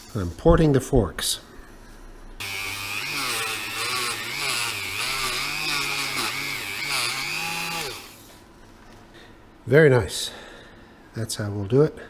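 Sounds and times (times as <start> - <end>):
rotary tool grinding metal: 2.4 - 8.2.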